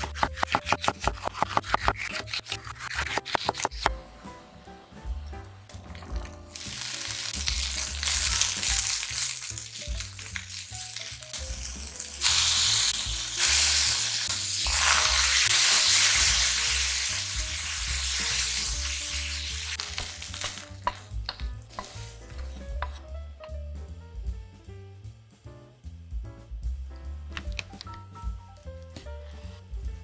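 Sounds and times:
peppers sizzling in frying pan: 5.9 - 23.1.

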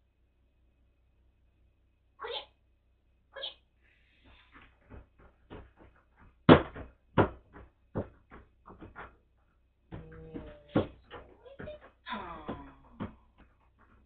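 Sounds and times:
sharp knocks and clatters: 4.3 - 14.0.

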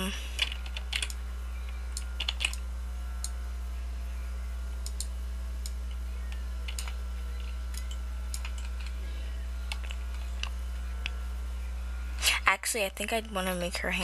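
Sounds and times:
steady low hum: 0.0 - 14.0
keyboard and mouse clicks: 6.7 - 9.0, 9.7 - 11.2.

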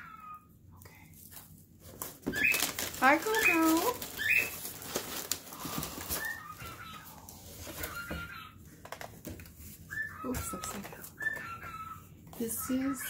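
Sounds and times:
cardboard box rustling: 1.8 - 8.3
high chirping calls: 2.4 - 4.6.

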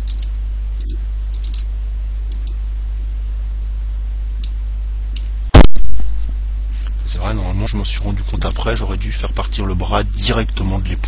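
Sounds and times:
mains hum and hiss: 0.0 - 11.0
loud short pop: 5.6 - 6.3.

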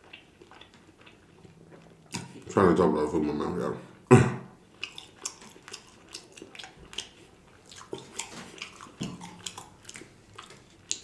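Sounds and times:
person chewing food: 0.0 - 2.5, 4.6 - 11.0.

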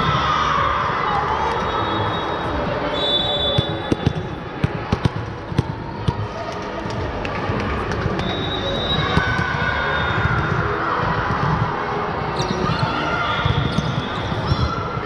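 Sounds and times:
steady background noise: 0.0 - 15.0
volleyball being struck and bouncing: 3.5 - 6.2.

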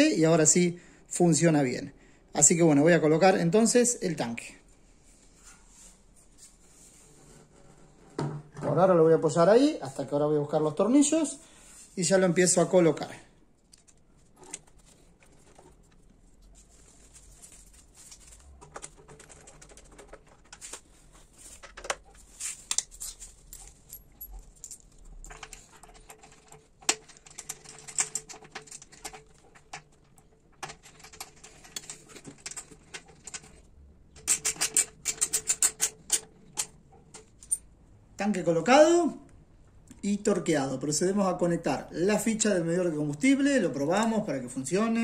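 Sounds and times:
metallic clicks and rattles of tools: 21.5 - 37.7
quick ratchet clicks: 34.2 - 36.7.

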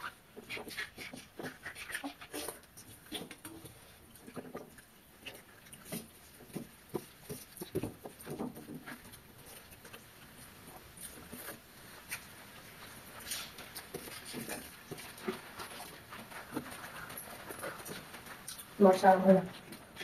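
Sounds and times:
chewing and lip smacks: 13.2 - 18.8.

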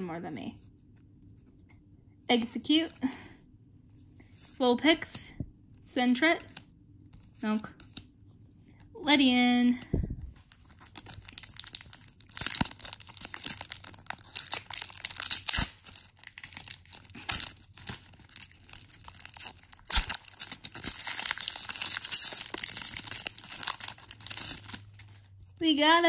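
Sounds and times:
foil wrapper tearing and crinkling: 10.4 - 25.3.

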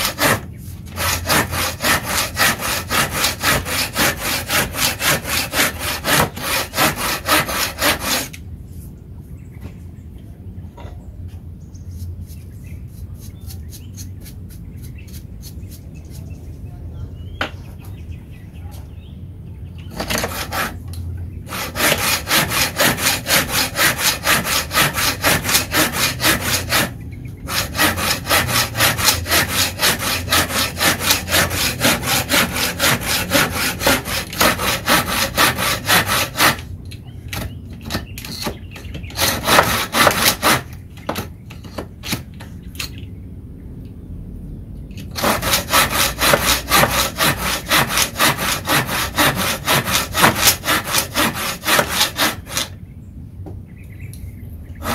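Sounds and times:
saw cutting through wood: 0.0 - 8.4, 19.9 - 20.8, 21.5 - 36.7, 37.8 - 42.2, 45.1 - 52.8.

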